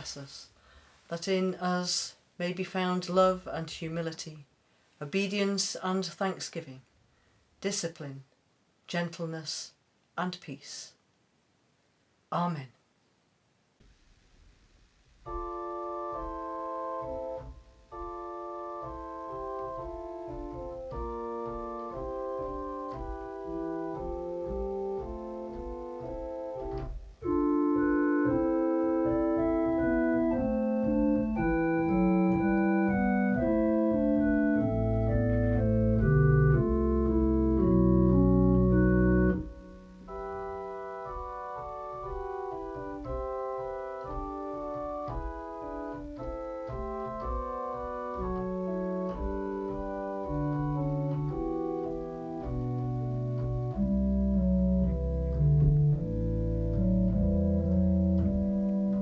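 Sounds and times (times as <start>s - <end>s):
organ music: 15.2s - 59.0s.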